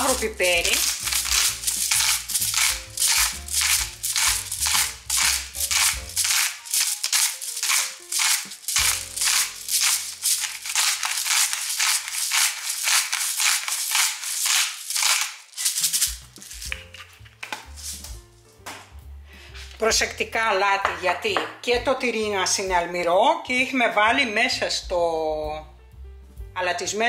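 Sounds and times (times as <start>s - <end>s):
background music: 0.0s - 12.4s, 15.6s - 27.0s
pepper mill grinding: 0.0s - 18.2s.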